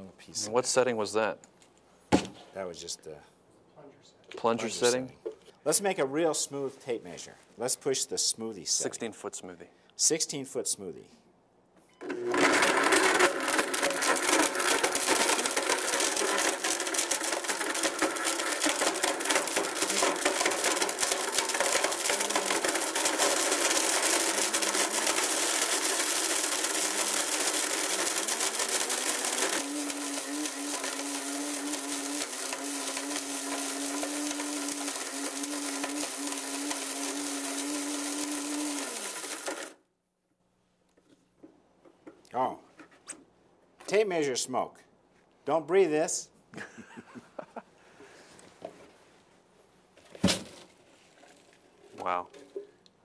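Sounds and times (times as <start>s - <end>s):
blender motor running: 12.0s - 39.8s
tape measure pieces grinding in jar: 12.2s - 39.8s.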